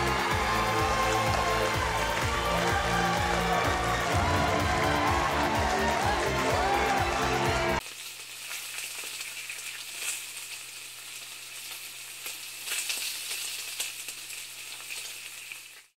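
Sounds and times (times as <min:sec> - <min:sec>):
crackling hiss with pops: 0:07.8 - 0:16.0.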